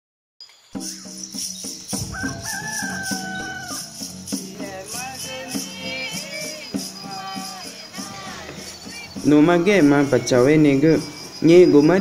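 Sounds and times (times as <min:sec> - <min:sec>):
music with percussion beat: 0:00.8 - 0:12.0
rooster crowing: 0:01.9 - 0:12.0.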